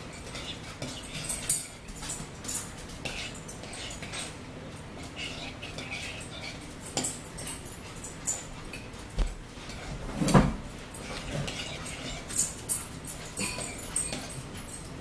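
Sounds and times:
spoon clinking in a bowl: 0:05.0 - 0:08.9, 0:11.0 - 0:15.0.

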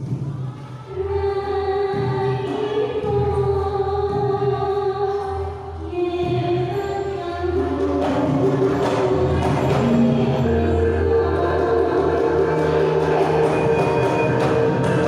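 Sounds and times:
sustained gamelan melody: 0:07.0 - 0:15.0.

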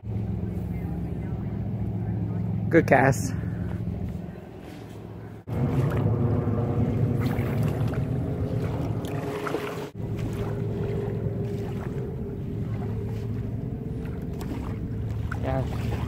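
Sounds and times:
boat motor drone: 0:00.0 - 0:16.0
faint steady hum: 0:00.0 - 0:16.0.

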